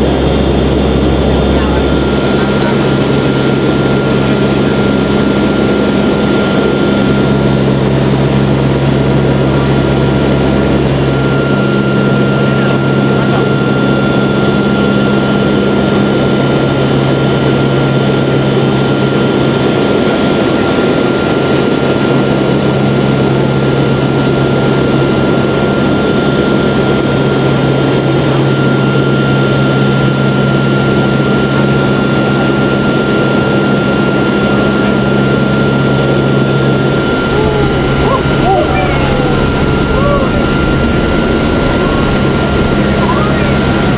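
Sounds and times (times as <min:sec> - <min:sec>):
high whine: 0:00.0 - 0:15.2, 0:35.1 - 0:43.9
propeller engines droning: 0:00.0 - 0:43.9
deep hum: 0:36.3 - 0:43.9.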